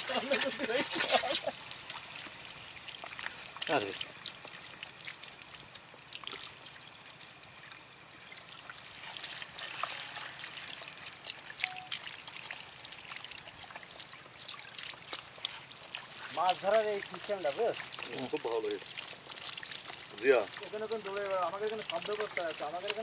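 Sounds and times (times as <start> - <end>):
water trickling with small splashes: 0.0 - 23.0.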